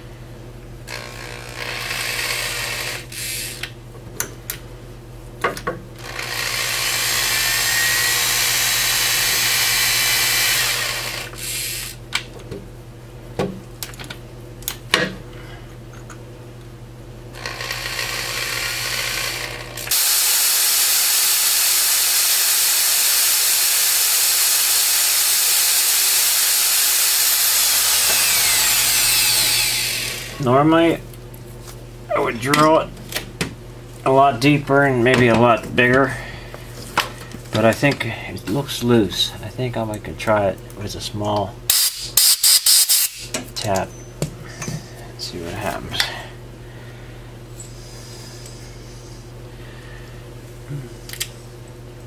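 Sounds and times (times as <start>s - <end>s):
angle drill boring into bolt: 0.9s - 3.6s, 6.0s - 12.0s, 17.4s - 30.4s.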